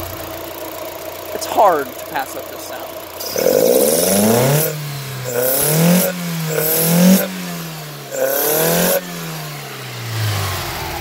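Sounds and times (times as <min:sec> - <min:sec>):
car engine revving: 0:00.0 - 0:11.0
loud engine intake: 0:01.3 - 0:11.0.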